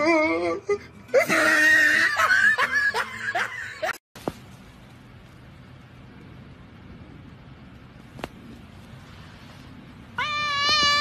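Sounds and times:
person laughing with squeals: 0:00.0 - 0:04.0.

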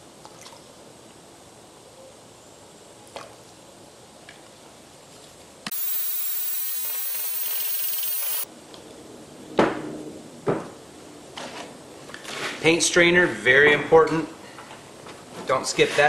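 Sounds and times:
cordless drill spinning: 0:05.7 - 0:08.5.

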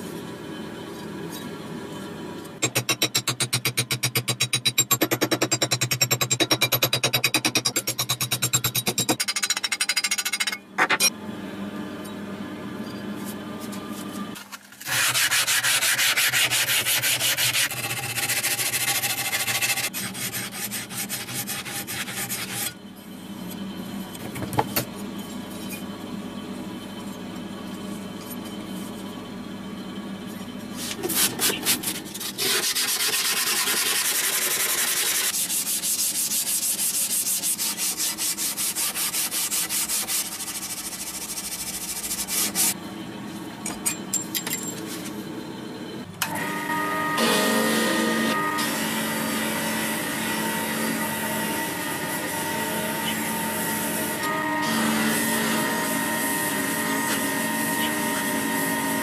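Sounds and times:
sanding steel rasping: 0:14.9 - 0:22.7, 0:31.1 - 0:42.8.

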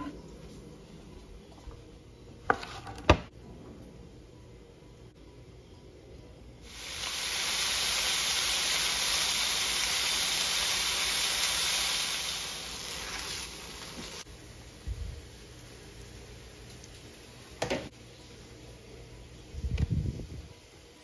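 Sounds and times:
ham sizzling on a griddle: 0:06.6 - 0:14.3.

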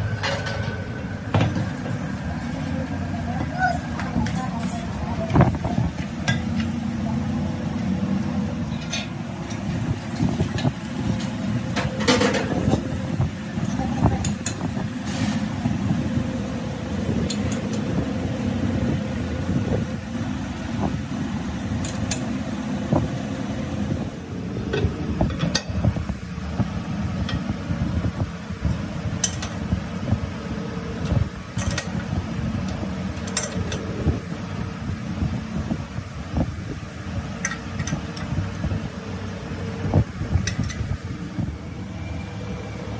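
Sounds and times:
workshop machinery running: 0:00.0 - 0:42.9.

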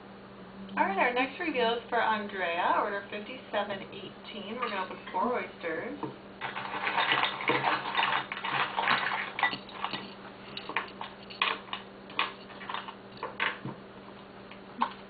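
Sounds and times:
oyster shells clattering: 0:06.4 - 0:13.6.

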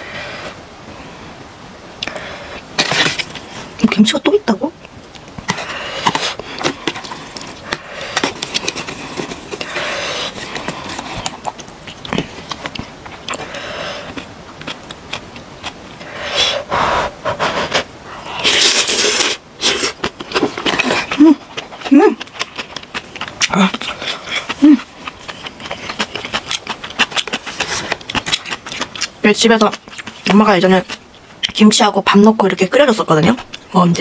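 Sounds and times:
noodles being slurped: 0:05.4 - 0:16.6, 0:17.3 - 0:31.0.

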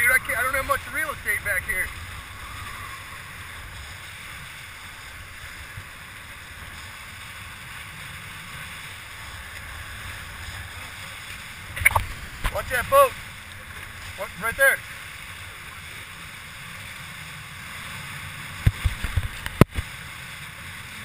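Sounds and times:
wind buffeting microphone: 0:00.0 - 0:14.3
water hissing along hull: 0:00.0 - 0:21.0.

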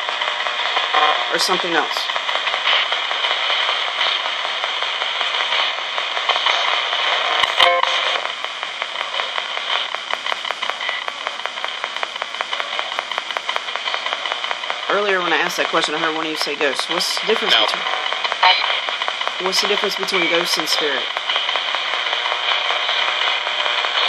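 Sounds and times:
radio static hiss: 0:00.0 - 0:24.0
rapid radio tuning clicks: 0:00.0 - 0:24.0
brief radio tone: 0:07.4 - 0:08.2.

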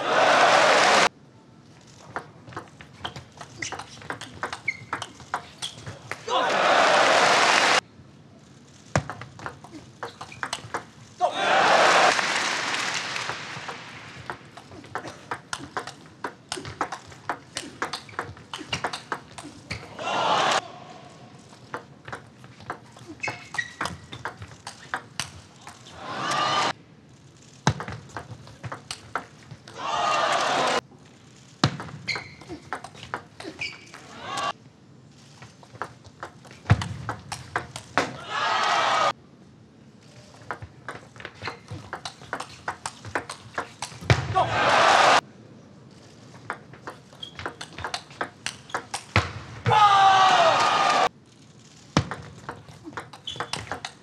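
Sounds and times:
loud shout: 0:06.2 - 0:07.8, 0:11.2 - 0:12.2, 0:20.0 - 0:21.0, 0:26.0 - 0:26.7, 0:29.8 - 0:30.8, 0:34.1 - 0:34.5, 0:38.2 - 0:39.1, 0:44.3 - 0:45.2, 0:49.7 - 0:51.1.

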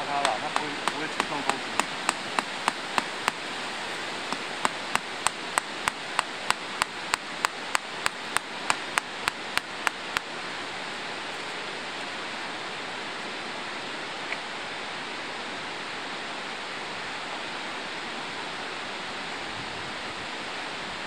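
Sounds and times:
tent stake being hammered: 0:00.0 - 0:10.4
steady rushing noise: 0:00.0 - 0:14.0.

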